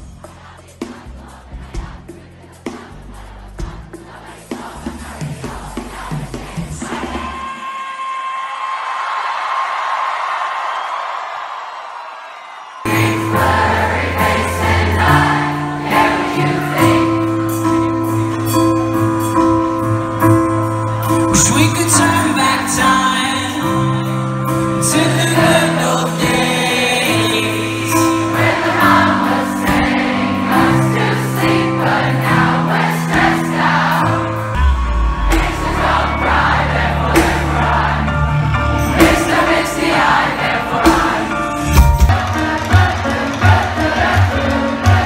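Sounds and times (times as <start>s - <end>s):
crowd singing along: 0.0s - 8.1s, 12.8s - 45.0s
held keyboard chords: 12.9s - 45.0s
deep bass: 34.6s - 39.3s.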